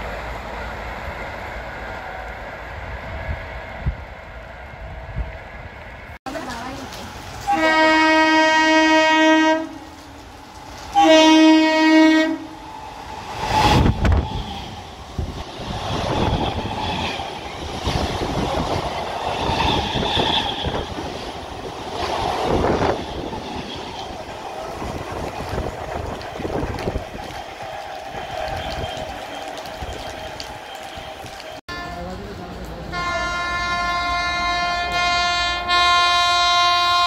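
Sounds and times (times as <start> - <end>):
train wheel and rail clatter: 0.0 - 37.0
train horn blasts: 7.5 - 10.0, 10.9 - 12.6, 31.0 - 32.2, 32.9 - 37.0.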